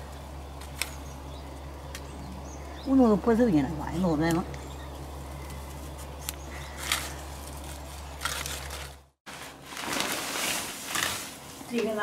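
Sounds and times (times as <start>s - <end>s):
steady low hum: 0.0s - 9.8s
leaves rustling: 0.0s - 12.0s
flower stalks snapping: 0.6s - 1.0s
plastic sack crinkling: 6.8s - 12.0s.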